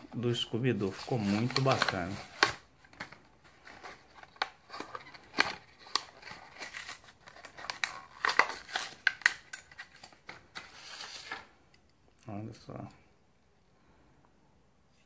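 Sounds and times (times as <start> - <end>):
card backing rustling: 0.2 - 11.5
plastic blister pack crinkling: 0.8 - 11.5.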